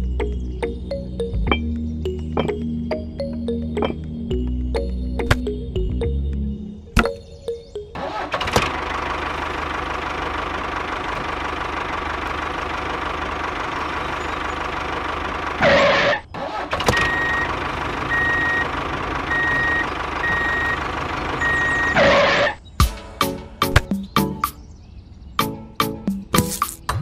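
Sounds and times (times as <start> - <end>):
tractor engine idling: 8.0 - 22.5
reversing beeper: 16.9 - 22.5.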